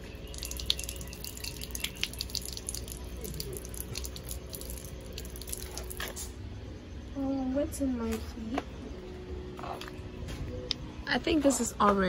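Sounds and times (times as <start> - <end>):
water splashing from a tap: 0.0 - 6.2.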